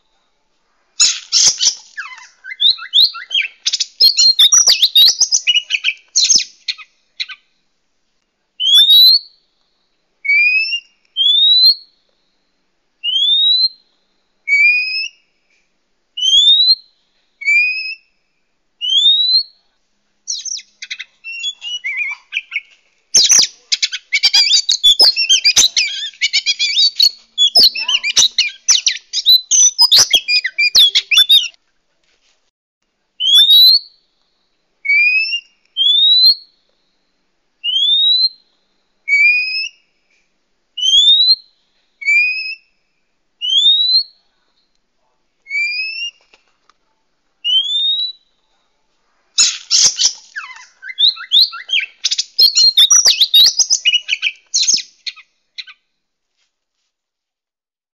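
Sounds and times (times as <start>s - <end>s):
bird scratchy jumbled song: 1.0s - 7.4s, 20.3s - 31.6s, 49.4s - 55.8s
bird rising whistles: 49.4s - 54.9s.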